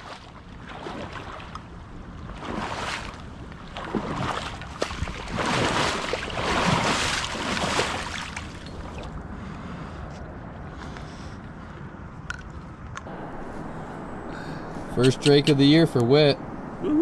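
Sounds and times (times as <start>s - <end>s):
water swishing: 0.0s - 9.2s.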